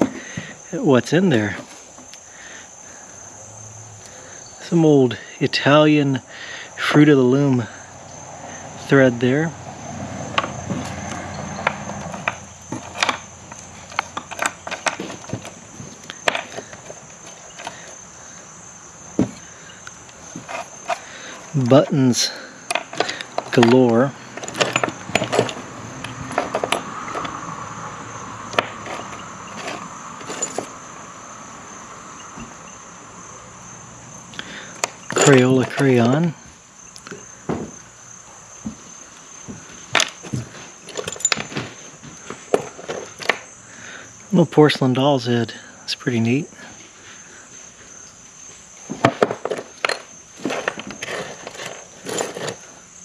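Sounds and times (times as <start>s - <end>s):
insects chirring: 0.0s - 53.0s
sewing odds and ends clattering: 10.2s - 18.2s, 19.1s - 27.5s, 28.5s - 30.8s, 34.5s - 36.4s, 39.8s - 43.5s, 48.9s - 52.8s.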